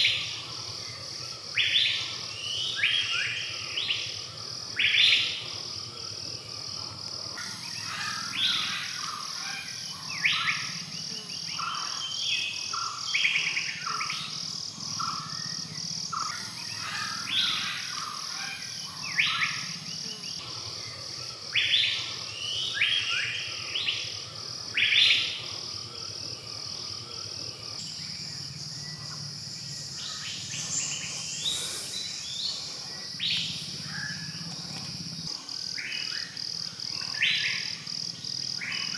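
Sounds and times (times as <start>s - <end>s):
pulsing insect drone: 0.0s - 38.9s
birds chirping and whistling: 27.8s - 34.4s.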